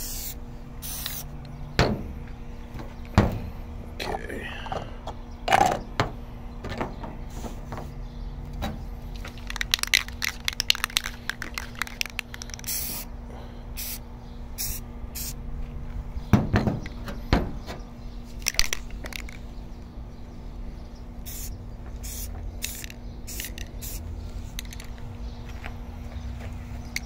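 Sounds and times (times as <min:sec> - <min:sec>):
spray can ball rattling: 0:00.0 - 0:01.3, 0:09.1 - 0:13.1, 0:18.4 - 0:19.4, 0:21.3 - 0:25.1
spray can hissing: 0:00.0 - 0:01.3, 0:09.4 - 0:13.1, 0:13.8 - 0:14.0, 0:14.6 - 0:15.4, 0:21.2 - 0:24.0
dull knocks: 0:16.3 - 0:17.8.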